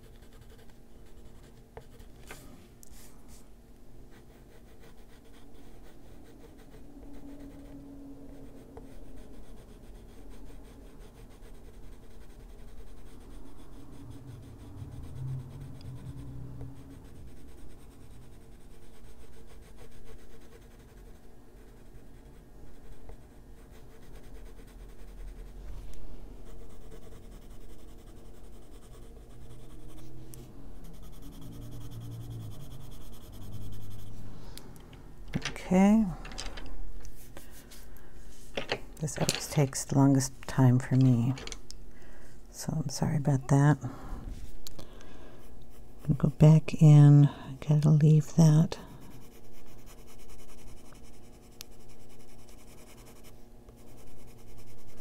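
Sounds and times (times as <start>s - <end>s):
pencil scratching on paper: 0.0s - 2.4s, 4.1s - 34.2s, 47.7s - 55.0s.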